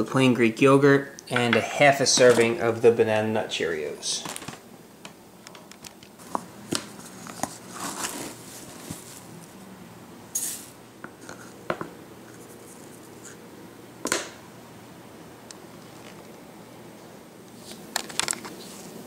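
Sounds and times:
oats rustling into bowl: 6.2 - 9.6, 10.4 - 11.5.

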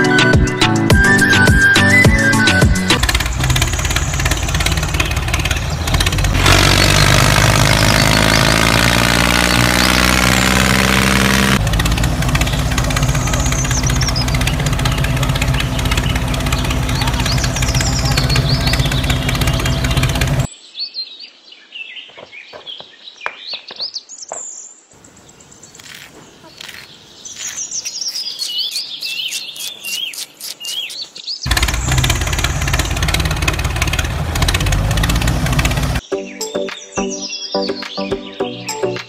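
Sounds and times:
music: 0.0 - 3.0, 36.0 - 39.0
small tractor engine running: 0.9 - 20.5, 31.5 - 36.0
birds chirping: 1.0 - 39.0.

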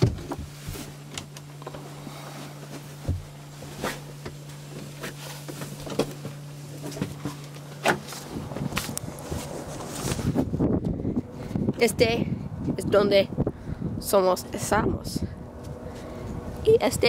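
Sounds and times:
knocks and thumps climbing hatch: 0.0 - 0.5
steady low hum: 0.0 - 17.0.

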